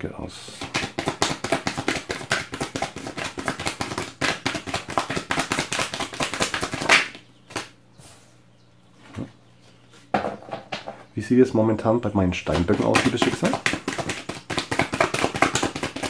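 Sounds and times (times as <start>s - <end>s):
cards being shuffled: 0.6s - 7.7s, 12.5s - 16.0s.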